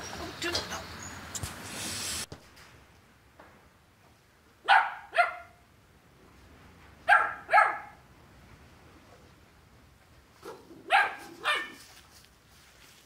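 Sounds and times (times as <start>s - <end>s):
puppy barking: 4.7s - 5.6s, 7.1s - 8.0s, 10.4s - 11.8s.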